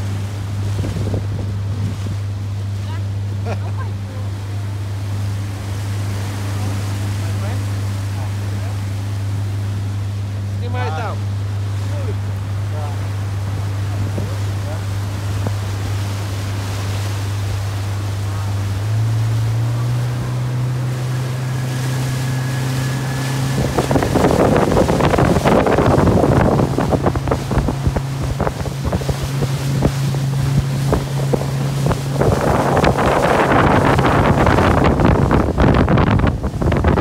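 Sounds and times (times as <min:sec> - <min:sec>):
wind buffeting microphone: 0:00.0 - 0:03.2, 0:11.3 - 0:37.0
motorboat engine humming: 0:00.0 - 0:37.0
water splashing against hull: 0:00.0 - 0:37.0.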